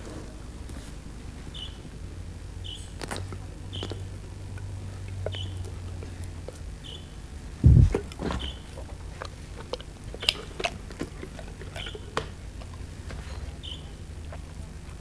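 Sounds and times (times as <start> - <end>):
dog chewing: 2.9 - 7.0, 7.6 - 15.0
loud low thump: 7.6 - 8.4
jaw smacks and clicks: 8.8 - 13.2.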